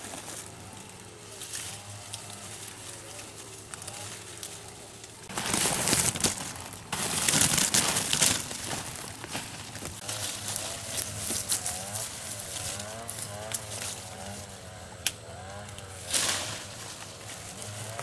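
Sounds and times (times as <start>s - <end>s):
leafy branches brushing: 0.0s - 18.0s
cloth sack rustling: 5.3s - 10.6s.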